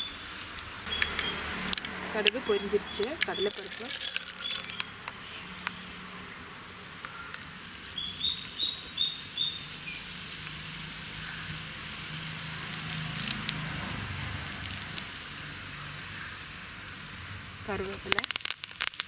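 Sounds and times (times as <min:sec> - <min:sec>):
food sizzling in hot oil: 0:06.8 - 0:19.0
sharp pops: 0:17.8 - 0:19.0.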